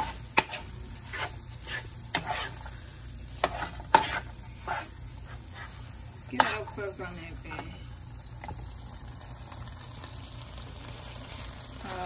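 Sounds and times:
metal spatula scraping a pan: 0.0 - 7.7
meat sizzling: 0.0 - 12.0.

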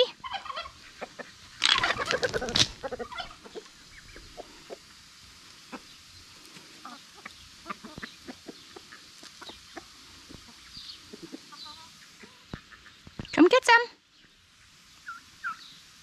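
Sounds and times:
hens clucking: 0.0 - 13.4.

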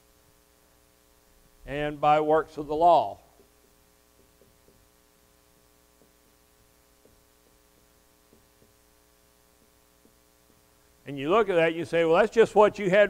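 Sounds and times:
faint electrical hum: 0.0 - 13.0
marker writing on whiteboard: 3.4 - 10.8.

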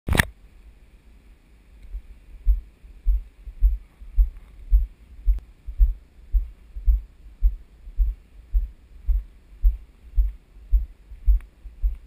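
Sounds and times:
sharp click: 0.1 - 0.3.

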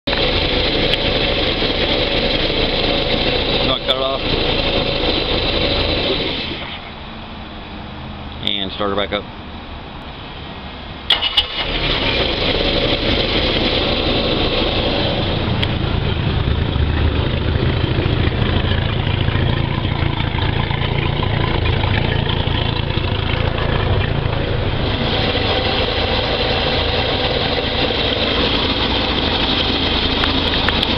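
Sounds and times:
boat engine starting and idling: 0.0 - 7.0, 11.0 - 30.9.

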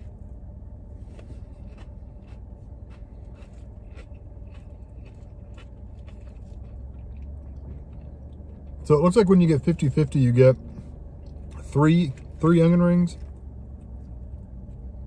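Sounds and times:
low hum in car cabin: 0.0 - 15.0
crunching chewing: 1.0 - 9.4.

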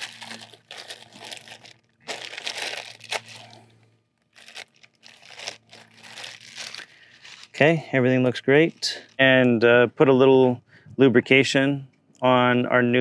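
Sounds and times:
plastic bag and paper crinkling: 0.0 - 3.6, 4.2 - 7.6, 8.3 - 9.4.

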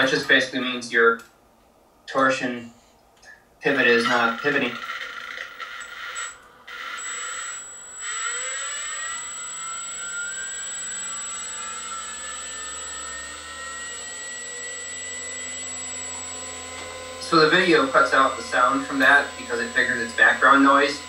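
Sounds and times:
spinning rotor whirring: 3.8 - 21.0.

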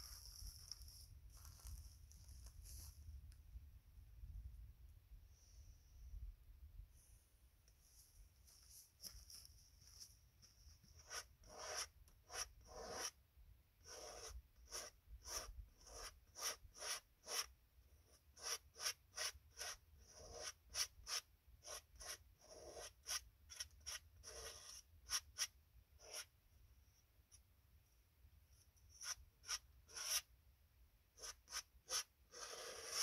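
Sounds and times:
palette knife scraping canvas: 0.0 - 3.0, 10.8 - 13.2, 13.8 - 17.5, 18.1 - 26.3, 28.9 - 30.3, 31.2 - 33.0.

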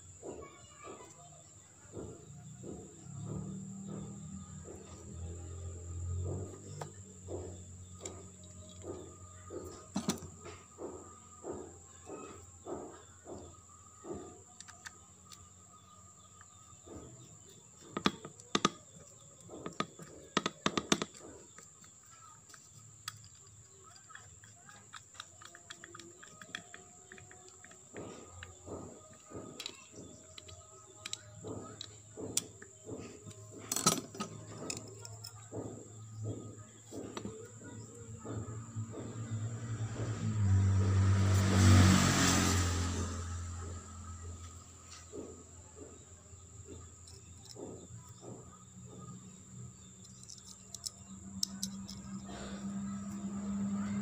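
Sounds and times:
faint chirps: 0.0 - 40.6, 43.0 - 54.0
screwdriver clinking on metal parts: 17.8 - 35.6, 50.0 - 52.3.

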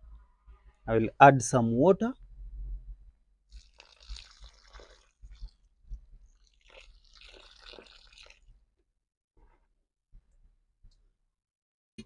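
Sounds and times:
water pouring onto soil: 3.5 - 5.6, 6.4 - 8.5.

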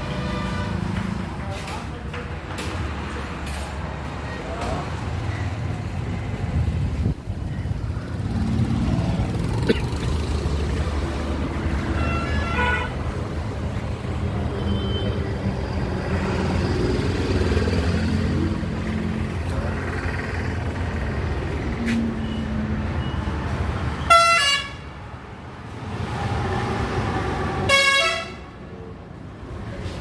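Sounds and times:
road traffic rumble: 0.0 - 30.0
pulsing vehicle horn: 24.0 - 24.8, 27.7 - 28.4.

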